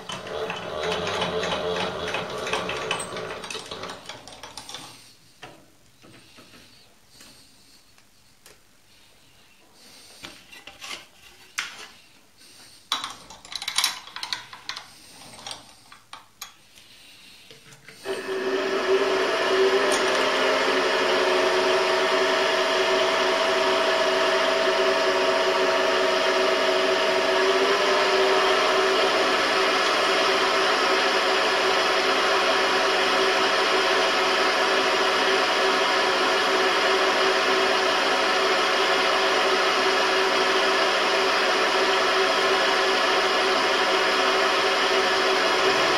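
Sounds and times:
milling machine motor whine: 0:00.0 - 0:04.7, 0:18.0 - 0:45.9
clicks and knocks of handling parts: 0:12.9 - 0:16.9.

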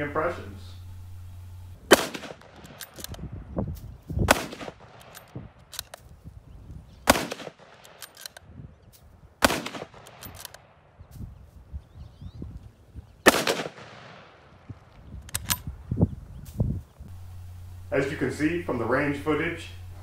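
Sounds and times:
rifle shots: 0:00.9 - 0:03.2, 0:04.2 - 0:06.0, 0:07.0 - 0:08.4, 0:09.4 - 0:10.8, 0:13.2 - 0:14.6
rifle bolt cycling: 0:01.9 - 0:03.2, 0:04.3 - 0:06.1, 0:07.1 - 0:08.4, 0:09.4 - 0:10.6, 0:15.2 - 0:15.7
metallic clicks of case ejection: 0:07.9 - 0:08.4, 0:10.0 - 0:10.6, 0:15.2 - 0:15.7.

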